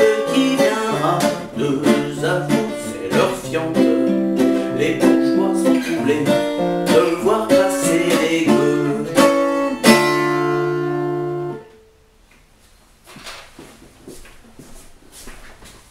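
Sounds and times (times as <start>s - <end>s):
acoustic guitar playing: 0.0s - 12.1s.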